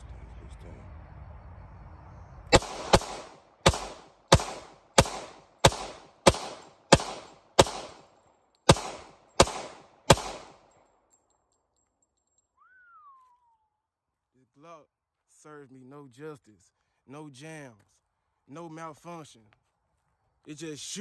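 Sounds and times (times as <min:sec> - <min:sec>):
pistol shots with echo: 0:02.5 - 0:10.7.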